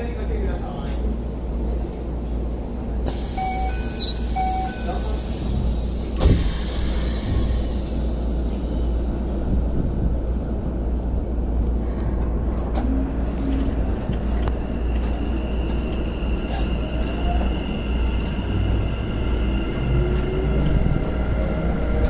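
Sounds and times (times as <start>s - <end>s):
electric train low rumble: 0.0s - 22.0s
faint rising whine of train motor: 3.0s - 9.8s.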